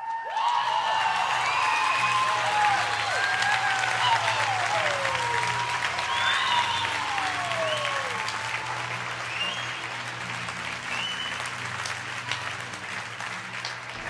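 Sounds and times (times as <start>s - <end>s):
audience applauding: 0.0s - 14.0s
whoops and whistles: 5.9s - 8.2s.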